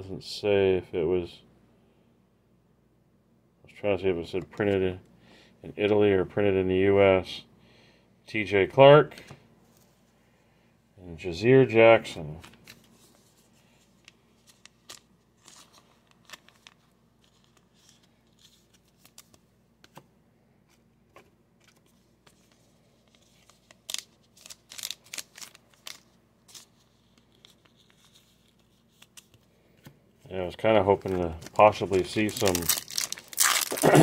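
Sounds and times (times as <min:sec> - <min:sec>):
plastic film crinkling: 0:12.4 - 0:19.4, 0:22.3 - 0:29.4, 0:30.4 - 0:34.0.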